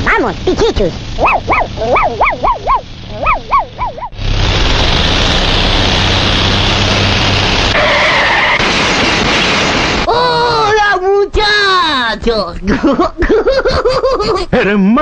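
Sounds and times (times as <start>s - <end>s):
cartoon tank rumbling: 0.0s - 11.1s
wavering whine: 0.4s - 10.1s
cartoon dog yapping: 1.2s - 4.2s.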